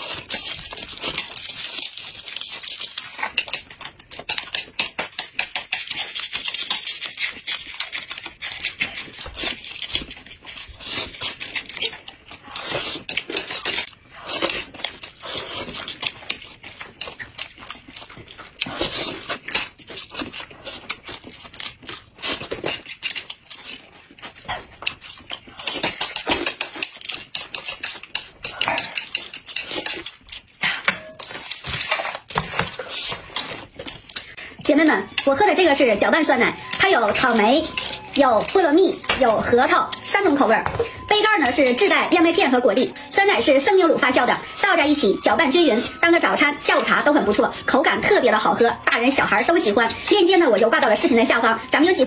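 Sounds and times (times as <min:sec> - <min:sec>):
chewing: 0:00.0 - 0:52.0
utensils clicking on plates: 0:24.4 - 0:52.0.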